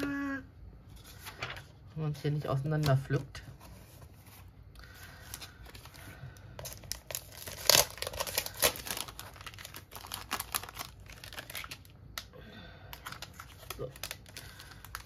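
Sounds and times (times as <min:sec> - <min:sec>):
plastic sleeve and paper crinkling: 0:02.6 - 0:12.3, 0:12.9 - 0:15.0.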